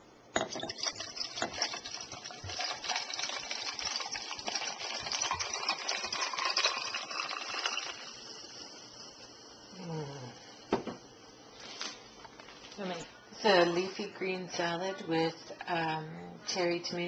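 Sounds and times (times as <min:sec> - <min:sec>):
carbonated water fizzing: 0:00.6 - 0:09.8.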